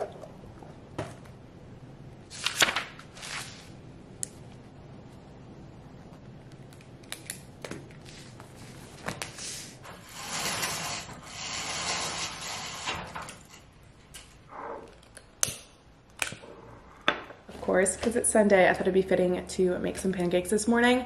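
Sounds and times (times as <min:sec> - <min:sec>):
fabric shade sliding: 0:08.1 - 0:13.6.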